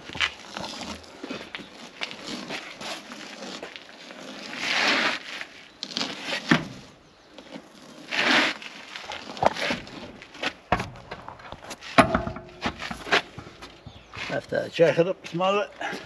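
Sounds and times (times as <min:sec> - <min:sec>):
wheel scraping and crunching: 0:00.0 - 0:16.0.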